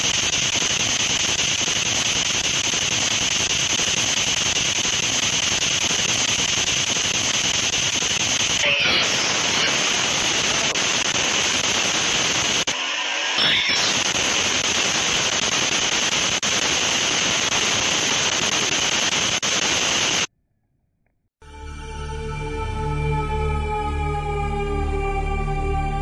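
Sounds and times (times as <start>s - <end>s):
pitched radio sound: 0.0s - 20.3s
radio static hiss: 0.0s - 20.3s.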